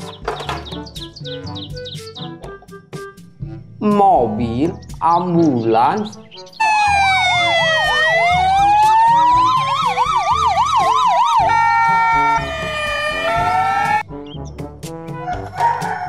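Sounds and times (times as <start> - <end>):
ambulance siren wailing: 6.6 - 14.0.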